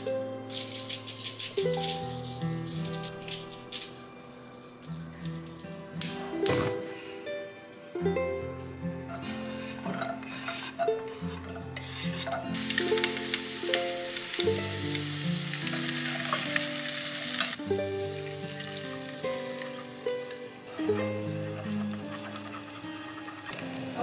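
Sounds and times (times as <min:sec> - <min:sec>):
onions sizzling in hot oil: 0:00.0 - 0:04.0, 0:11.8 - 0:24.0
background music: 0:00.0 - 0:24.0.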